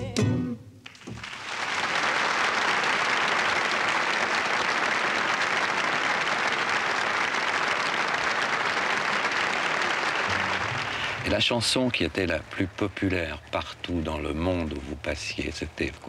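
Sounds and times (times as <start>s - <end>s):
guitar and singing: 0.0s - 0.6s
audience clapping: 0.8s - 13.0s.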